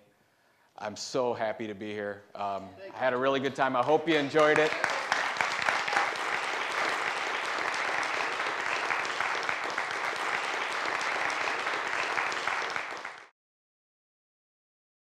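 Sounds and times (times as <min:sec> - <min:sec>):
audience applauding: 0:04.1 - 0:13.3.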